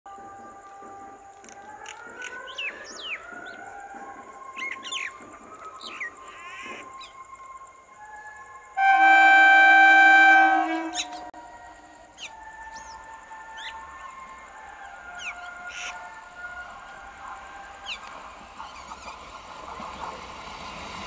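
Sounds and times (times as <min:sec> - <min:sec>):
train horn blast: 0:08.7 - 0:11.4
birds chirping: 0:10.4 - 0:11.3.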